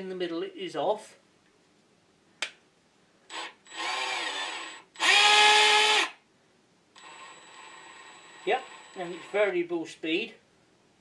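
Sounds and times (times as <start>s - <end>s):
drill motor whine: 3.3s - 6.2s, 7.0s - 9.4s.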